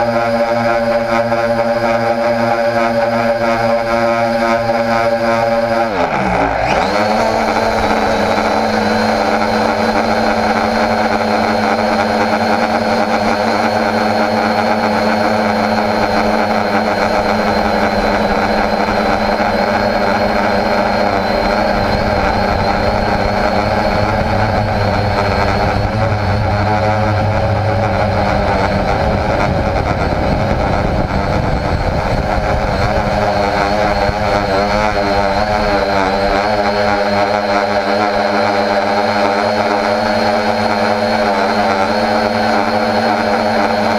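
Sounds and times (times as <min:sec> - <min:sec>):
drone motors humming: 0:00.0 - 0:43.9
thin high whine: 0:00.0 - 0:43.9.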